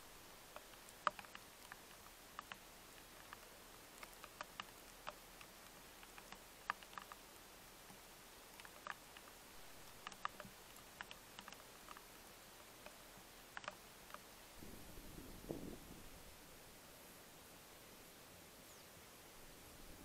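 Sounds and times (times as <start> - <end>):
soft ticks and clicks: 0.0 - 15.9
faint camera hiss: 0.0 - 20.0.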